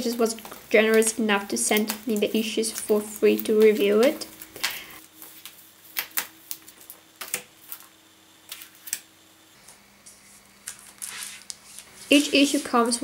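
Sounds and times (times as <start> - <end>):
paper taps and rustles: 0.0 - 7.9.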